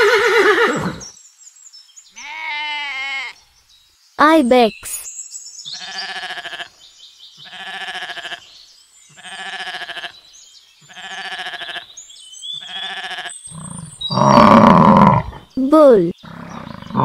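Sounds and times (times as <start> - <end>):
ibex bleating: 2.2 - 3.4, 5.8 - 6.8, 7.4 - 8.5, 9.2 - 10.2, 10.9 - 11.9, 12.6 - 15.4.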